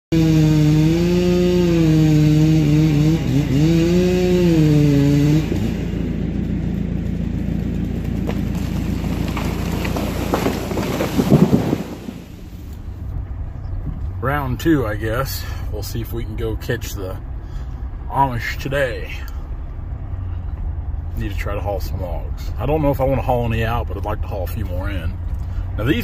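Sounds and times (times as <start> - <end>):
chainsaw cutting: 0.1 - 12.9
loud cracks: 6.4 - 12.8.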